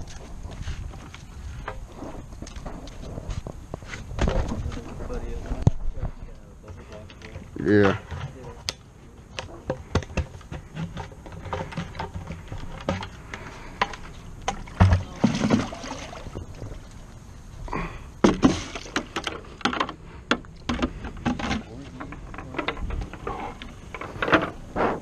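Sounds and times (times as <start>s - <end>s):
water splashing in bucket: 14.4s - 16.8s, 18.3s - 19.3s.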